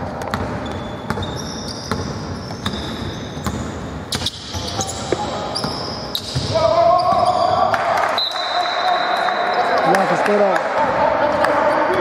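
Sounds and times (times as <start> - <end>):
basketball bouncing: 0.0 - 7.4
sneakers squeaking on court: 0.0 - 7.7.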